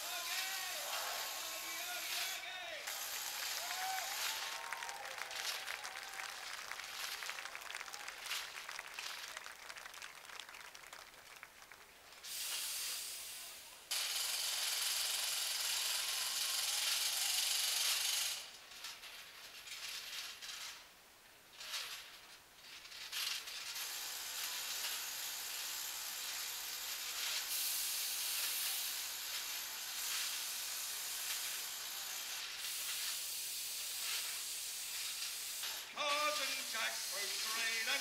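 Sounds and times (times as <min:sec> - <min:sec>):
steam hissing from vents: 0:00.0 - 0:04.8, 0:12.2 - 0:18.6, 0:23.4 - 0:38.0.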